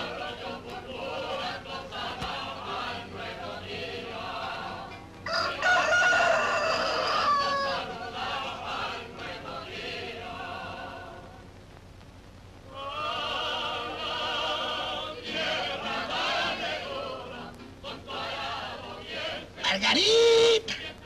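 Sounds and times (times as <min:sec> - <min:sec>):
choral music: 0:00.0 - 0:11.5, 0:12.7 - 0:20.0, 0:20.6 - 0:21.0
rooster crowing: 0:05.2 - 0:08.1.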